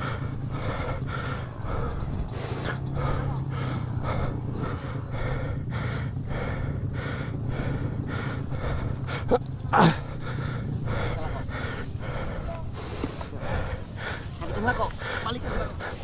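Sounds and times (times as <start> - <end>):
person panting heavily: 0.0 - 16.0
steady low hum: 0.0 - 16.0
short loud grunts: 9.2 - 10.4.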